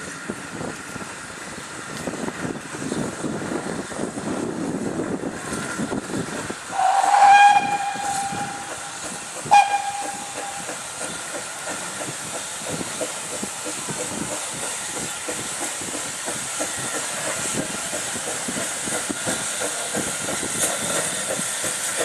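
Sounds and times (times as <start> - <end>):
steam railcar rumbling: 0.0 - 22.0
steam whistle blasts: 6.7 - 8.8, 9.4 - 10.7.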